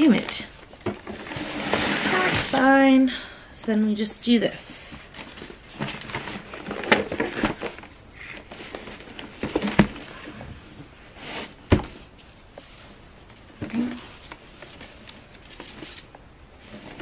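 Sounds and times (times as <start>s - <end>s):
wrapping paper and ribbon rustling: 0.0s - 2.8s.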